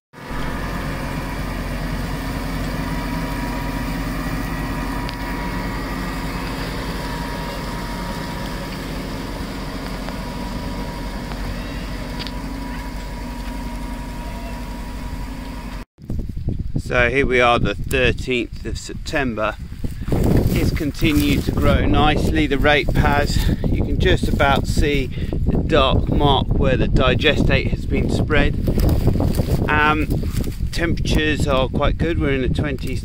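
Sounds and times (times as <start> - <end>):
machine engine humming: 0.2 - 15.9, 19.8 - 24.8.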